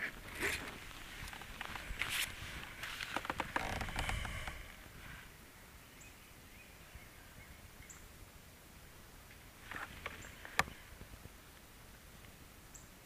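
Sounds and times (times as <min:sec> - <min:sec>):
faint bird chirps: 0:05.2 - 0:08.2.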